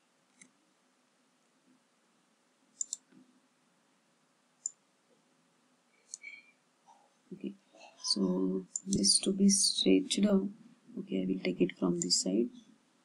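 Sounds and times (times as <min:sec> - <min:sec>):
faint steady hum: 0:00.0 - 0:13.0
computer mouse button clicking: 0:02.8 - 0:03.0.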